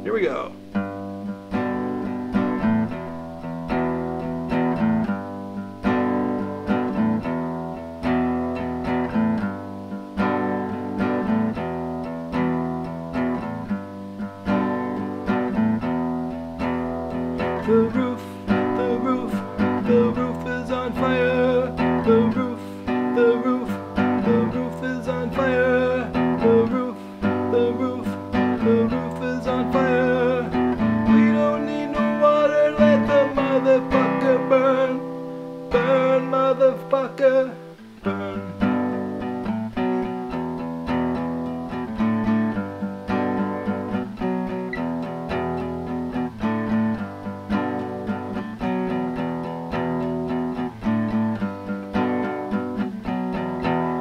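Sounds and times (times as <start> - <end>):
acoustic guitar strumming: 0.0 - 54.0
person singing: 17.3 - 39.4.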